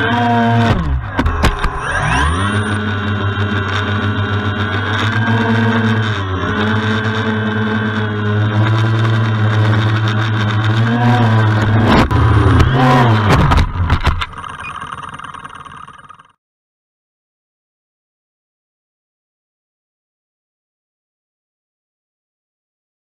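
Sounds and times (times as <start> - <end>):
drone motors humming: 0.0 - 16.4.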